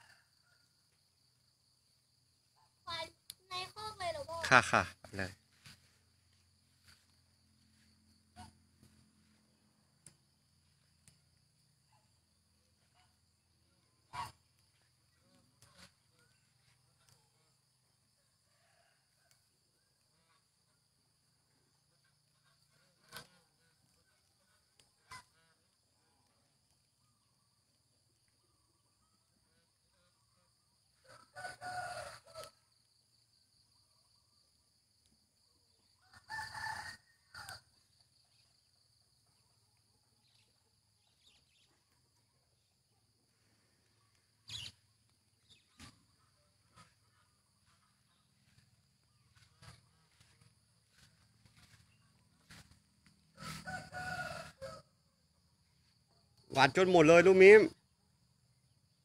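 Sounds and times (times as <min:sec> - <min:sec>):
insect chirring: 0:00.0 - 0:19.0, 0:43.2 - 0:59.0
poultry calls: 0:44.4 - 0:54.8.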